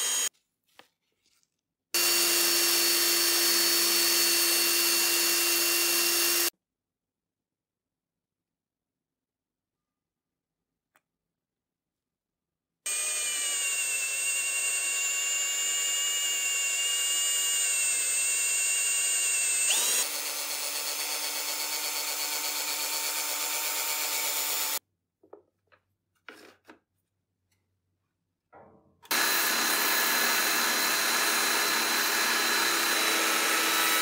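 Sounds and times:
rotary power tool whining: 0:00.0 - 0:00.3, 0:02.0 - 0:06.5, 0:12.9 - 0:24.8, 0:29.1 - 0:34.0.

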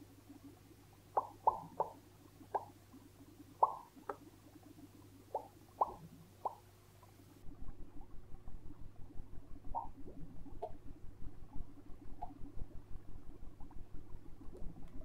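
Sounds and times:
lip popping sounds: 0:00.5 - 0:07.2, 0:09.7 - 0:10.8.

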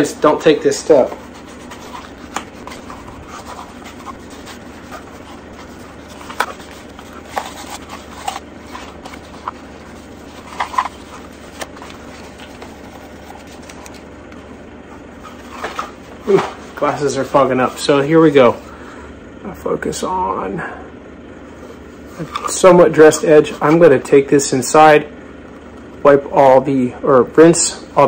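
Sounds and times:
sandpaper rubbing plastic: 0:00.4 - 0:14.1, 0:14.9 - 0:18.7.

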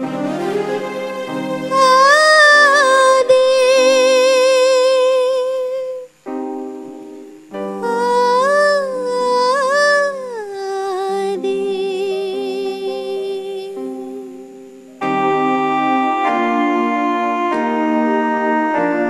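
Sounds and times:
electronic keyboard chords: 0:00.0 - 0:19.0
organ-like keyboard chords: 0:00.0 - 0:19.0
woman singing: 0:01.7 - 0:06.1, 0:06.8 - 0:14.7.

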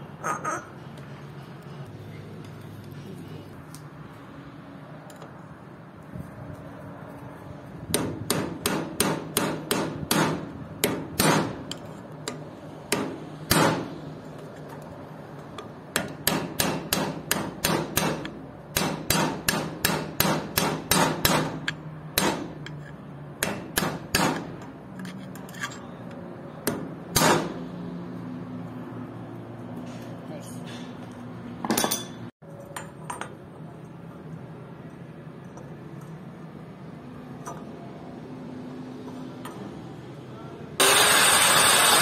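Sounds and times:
hammer striking steel punch: 0:07.9 - 0:11.6, 0:12.9 - 0:14.0, 0:15.9 - 0:22.6, 0:23.4 - 0:24.7, 0:26.6 - 0:27.6.

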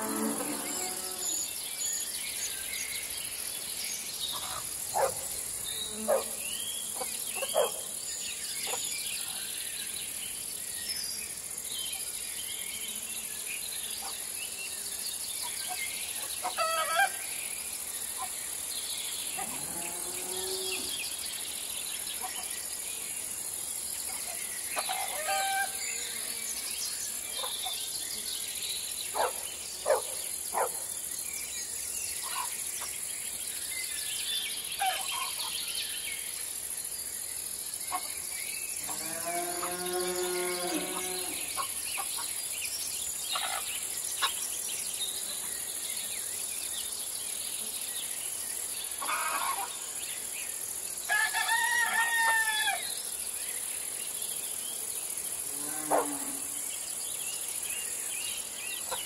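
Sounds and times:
bird and animal calls: 0:00.0 - 0:01.5, 0:04.3 - 0:07.9, 0:08.6 - 0:09.4, 0:15.5 - 0:17.4, 0:24.1 - 0:26.0, 0:27.2 - 0:27.8, 0:29.1 - 0:30.8, 0:32.2 - 0:32.6, 0:34.8 - 0:35.5, 0:37.9 - 0:42.3, 0:43.3 - 0:44.5, 0:48.9 - 0:50.0, 0:55.5 - 0:56.6, 0:58.8 - 0:59.0
insects chirring: 0:00.0 - 0:59.0.

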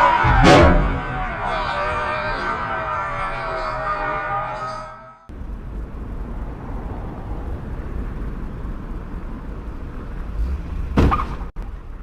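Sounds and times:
car road and engine rumble: 0:05.3 - 0:12.0.

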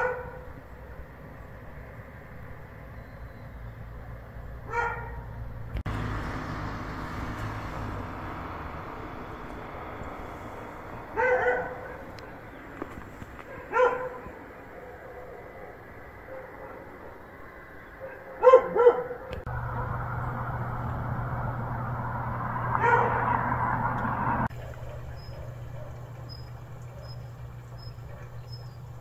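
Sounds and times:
dog barking: 0:00.0 - 0:00.5, 0:04.6 - 0:05.3, 0:11.1 - 0:12.2, 0:13.4 - 0:17.2, 0:18.0 - 0:19.4, 0:22.7 - 0:23.4, 0:24.8 - 0:26.1, 0:26.9 - 0:27.2, 0:28.0 - 0:28.6.

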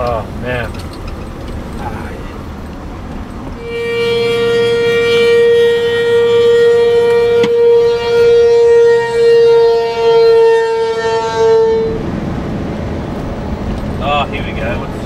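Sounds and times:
loud warning tone: 0:03.6 - 0:12.2.

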